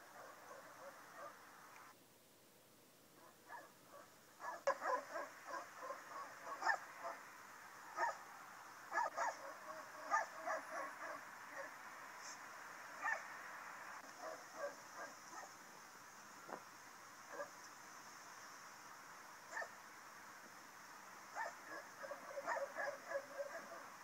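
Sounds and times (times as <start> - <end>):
stifled dog barks: 0.1 - 1.4, 3.2 - 7.2, 7.9 - 8.2, 8.9 - 11.8, 13.0 - 13.3, 14.1 - 15.6, 17.3 - 17.6, 19.5 - 19.8, 21.3 - 24.0.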